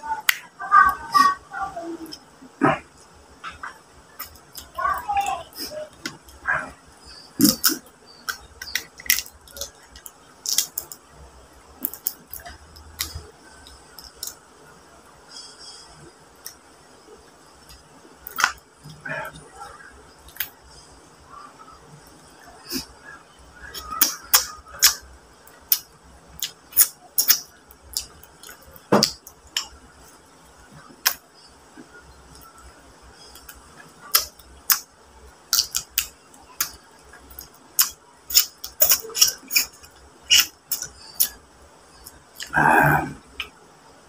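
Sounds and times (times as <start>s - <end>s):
crab shell cracking: 7.5s - 11.0s
chewing and lip-smacking: 25.6s - 29.8s, 35.5s - 41.4s.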